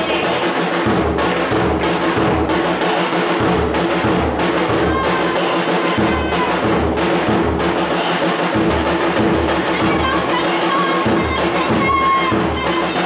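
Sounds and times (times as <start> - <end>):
music with heavy low drum beat: 0.0 - 13.0.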